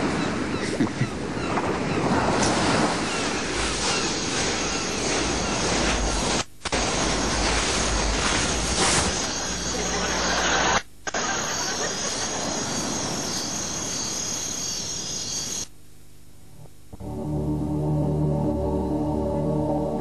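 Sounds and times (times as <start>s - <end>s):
loud steady rushing noise: 3.5s - 10.8s.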